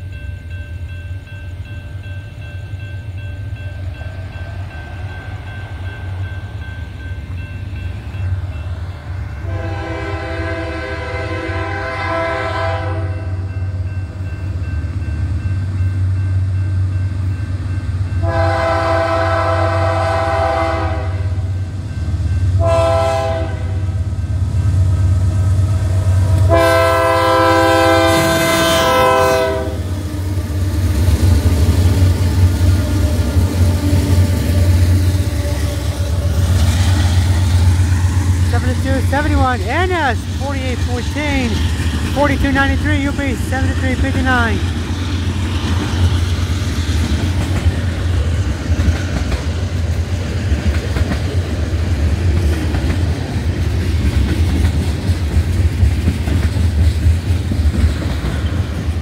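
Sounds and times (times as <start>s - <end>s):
low train rumble: 0.0s - 59.0s
locomotive air horn blasts: 9.4s - 13.4s, 18.2s - 21.4s, 22.6s - 24.0s, 26.4s - 29.9s.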